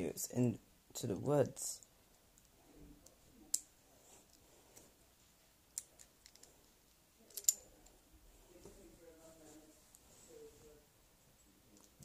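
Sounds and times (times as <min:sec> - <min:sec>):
faint rustling: 0:02.1 - 0:12.0.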